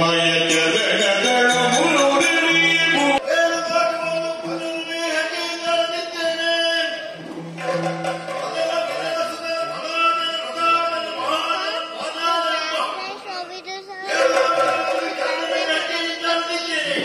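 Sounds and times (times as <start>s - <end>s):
person singing: 0.0s - 5.3s
drum accompaniment: 0.0s - 11.5s, 14.0s - 17.0s.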